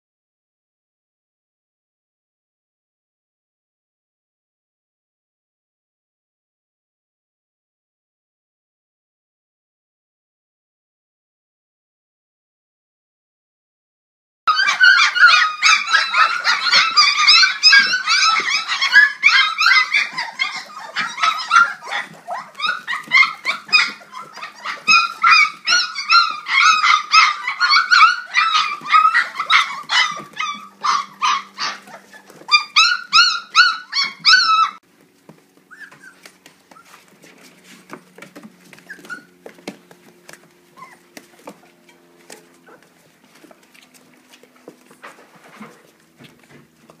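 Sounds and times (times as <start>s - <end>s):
puppies whining and squealing: 14.5s - 34.8s, 35.6s - 47.0s.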